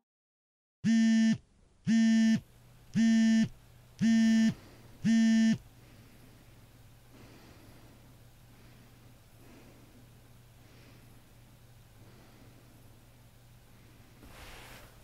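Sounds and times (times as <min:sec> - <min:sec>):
buzzy alarm beeps: 0:00.8 - 0:02.4, 0:03.0 - 0:05.6
faint hum: 0:00.8 - 0:15.0.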